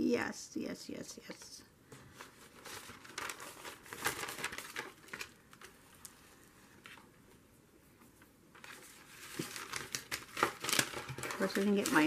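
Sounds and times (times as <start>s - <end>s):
paper rustling and crinkling: 1.9s - 7.4s, 8.0s - 12.0s.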